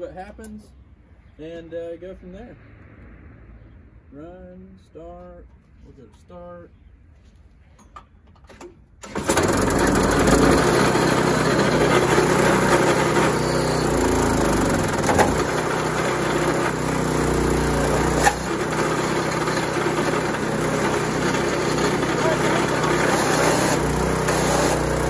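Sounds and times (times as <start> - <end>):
small gas engine running hard: 9.0 - 25.0.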